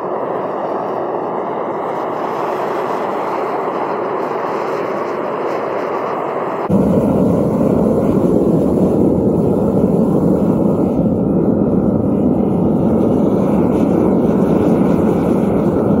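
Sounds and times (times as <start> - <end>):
gas burner roaring: 0.0 - 16.0.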